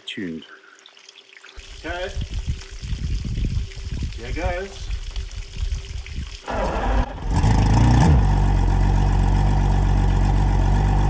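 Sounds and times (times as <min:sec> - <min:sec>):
outboard engine revving and idling: 0:06.5 - 0:11.0.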